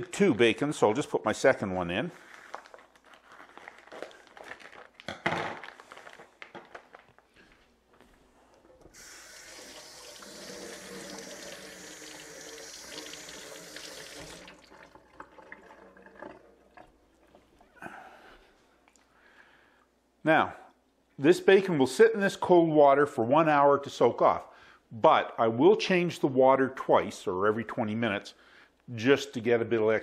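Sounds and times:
hands washing under water: 0:08.6 - 0:17.8
faucet running into steel sink: 0:08.9 - 0:17.0.

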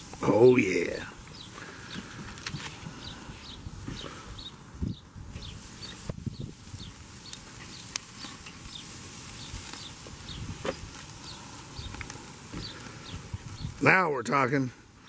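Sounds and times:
steaks sizzling on grill: 0:00.0 - 0:15.0.

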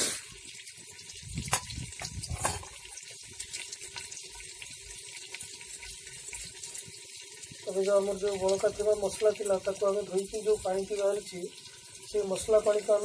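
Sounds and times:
meat sizzling in a pot: 0:00.0 - 0:13.0
metal spoon knocking pot: 0:01.5 - 0:02.8.

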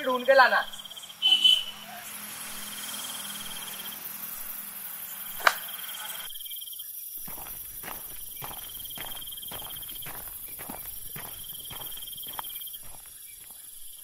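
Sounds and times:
crickets chirping: 0:00.0 - 0:14.0
sharp click: 0:05.4 - 0:05.8
running footsteps: 0:07.2 - 0:14.0.

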